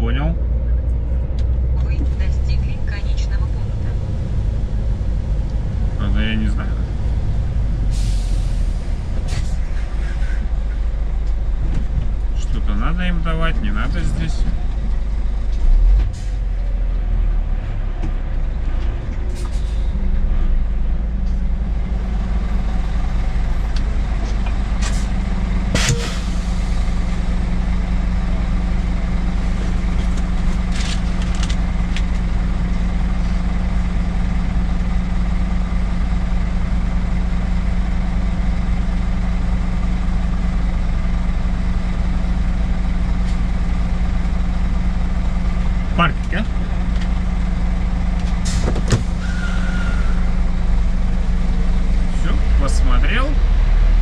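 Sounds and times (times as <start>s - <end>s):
truck diesel engine idling: 0.0s - 54.0s.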